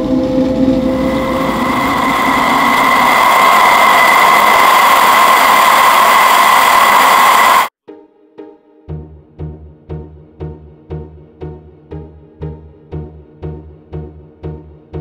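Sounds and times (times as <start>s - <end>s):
outboard motors high whine: 0.0s - 7.7s.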